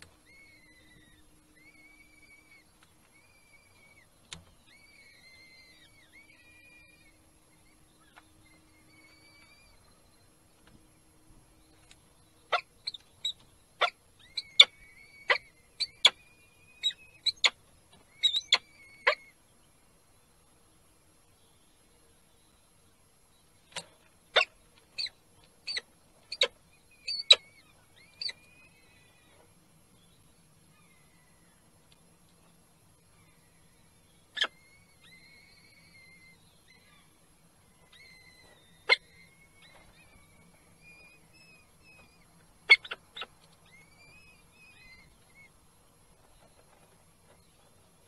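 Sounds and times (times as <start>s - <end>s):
falcon chicks cheeping: 11.7s - 19.4s, 23.7s - 29.4s, 33.5s - 37.2s, 37.8s - 45.6s
falcons calling: 38.0s - 40.1s, 41.8s - 45.5s.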